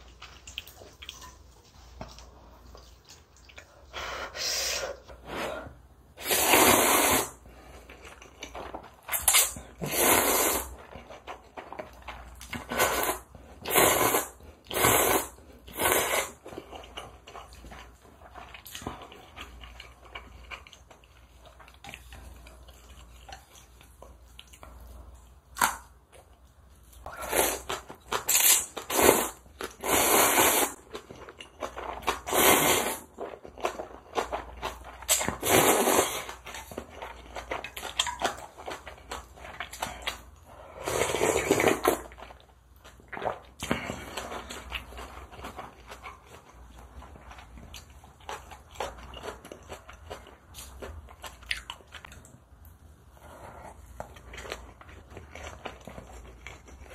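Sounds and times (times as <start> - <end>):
chewing: 0.0 - 3.9, 15.7 - 28.3, 33.2 - 56.9
person slurping noodles: 4.3 - 7.5, 9.3 - 10.8, 12.6 - 16.4, 27.1 - 30.8, 32.1 - 33.1, 35.1 - 36.4, 40.0 - 42.1.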